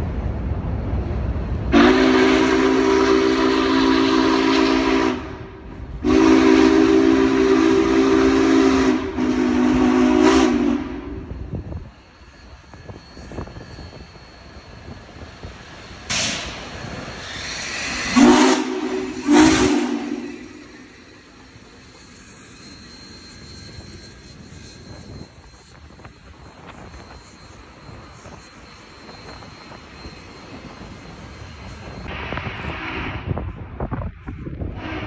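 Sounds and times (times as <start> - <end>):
low rumble of train: 0.0 - 35.0
steam locomotive whistle: 1.7 - 11.7, 16.1 - 33.5, 34.7 - 35.0
steam hiss: 6.0 - 35.0.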